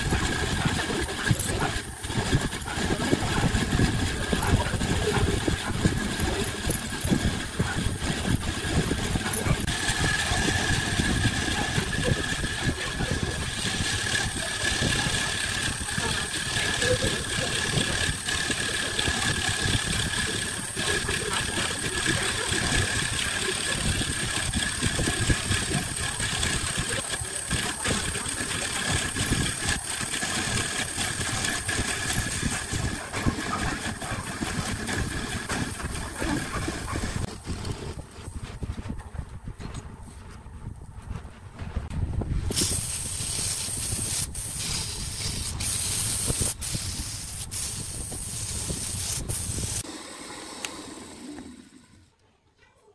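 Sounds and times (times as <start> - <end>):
drill bit boring into wood: 0.0 - 37.7, 48.4 - 52.1
wood lathe motor whine: 0.0 - 38.0, 49.8 - 52.1.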